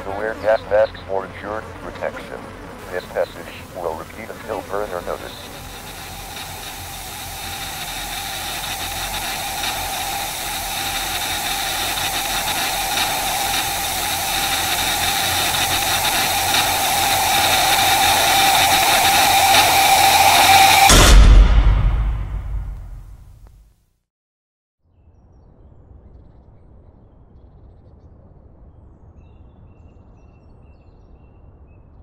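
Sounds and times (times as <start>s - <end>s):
faint crackles: 0.0s - 20.9s
television static hiss: 0.0s - 20.9s
wavering drone: 0.0s - 21.1s.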